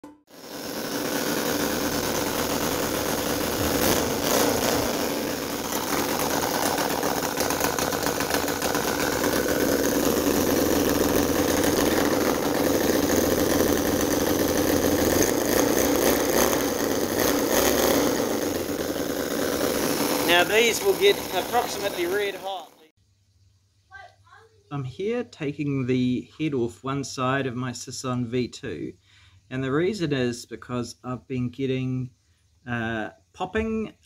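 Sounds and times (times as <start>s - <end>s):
model gasoline engine running: 0.3s - 22.9s.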